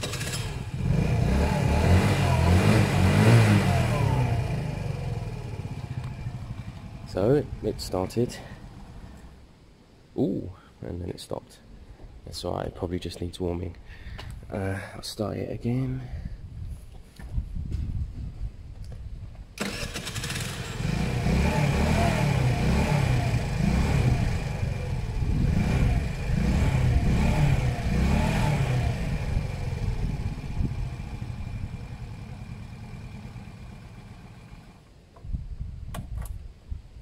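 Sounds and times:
scooter engine revving: 0.0 - 7.6, 19.6 - 34.8.

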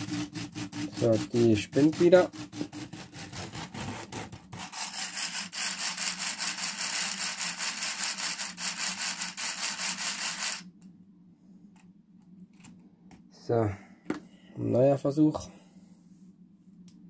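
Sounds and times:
person talking: 0.9 - 2.4
toy train motor whirring and clicking: 4.6 - 10.7.

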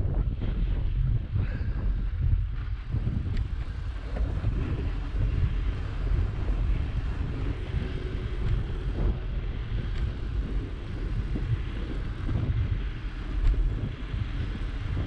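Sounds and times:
bicycle tyres rolling on snow: 0.0 - 15.0
wind buffeting the microphone: 0.0 - 15.0.

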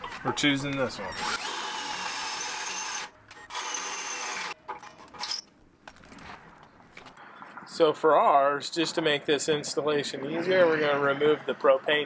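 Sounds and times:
cordless drill boring into metal: 1.2 - 4.6.

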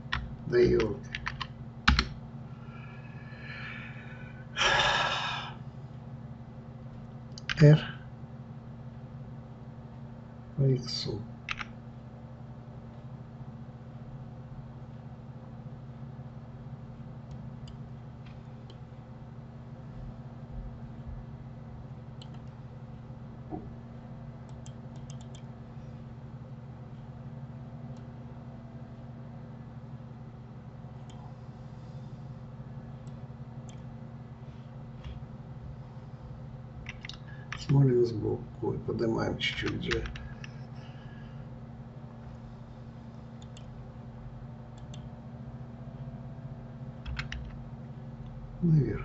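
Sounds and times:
steady low hum: 0.0 - 49.0
man sighing: 2.8 - 5.6
computer mouse clicks: 7.3 - 7.6, 11.5 - 11.7, 22.2 - 22.6, 24.5 - 25.5, 33.0 - 33.9, 36.8 - 37.7, 43.4 - 43.7, 44.8 - 45.1, 47.0 - 47.6.

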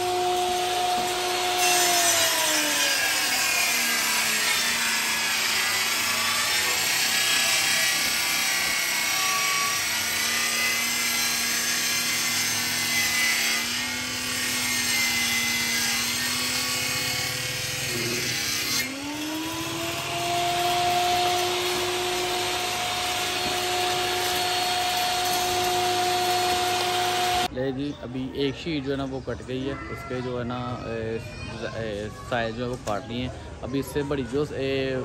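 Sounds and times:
power saw cutting wood: 0.0 - 27.5
saw motor whine: 0.0 - 27.5.

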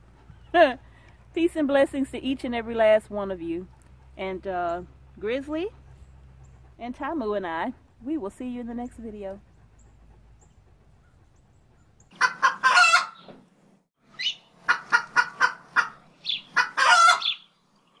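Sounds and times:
chicken calling and clucking: 12.1 - 13.3, 14.1 - 17.5.

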